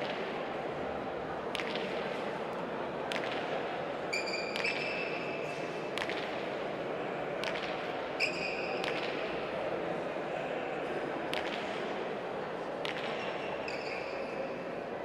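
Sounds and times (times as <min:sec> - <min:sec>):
shoes squeaking on court floor: 0:04.1 - 0:05.4, 0:08.2 - 0:08.8, 0:13.4 - 0:14.5.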